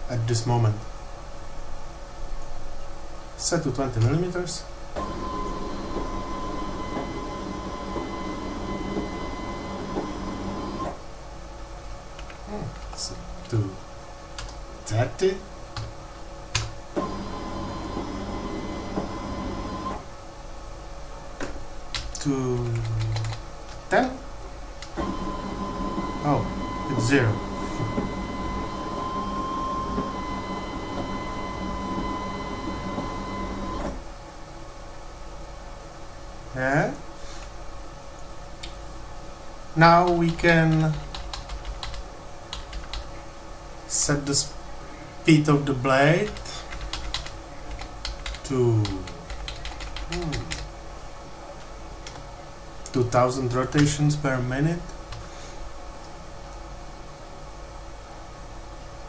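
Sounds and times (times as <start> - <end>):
stepper motor whining: 25.0 - 34.0.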